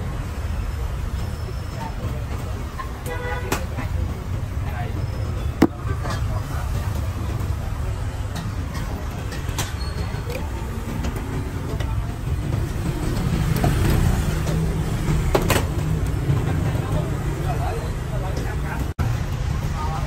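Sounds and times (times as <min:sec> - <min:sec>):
road traffic rumble: 0:00.0 - 0:20.0
sharp knock: 0:05.6 - 0:05.8.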